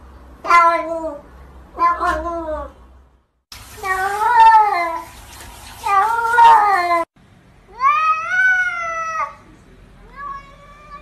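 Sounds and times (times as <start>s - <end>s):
cat meowing: 1.8s - 2.7s, 7.7s - 9.4s, 10.0s - 11.0s.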